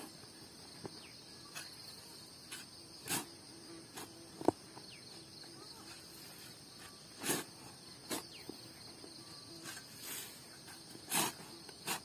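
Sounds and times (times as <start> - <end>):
insects chirring: 0.0 - 12.0
shovel scraping into clay soil: 1.4 - 4.5, 5.8 - 8.6, 9.6 - 12.0.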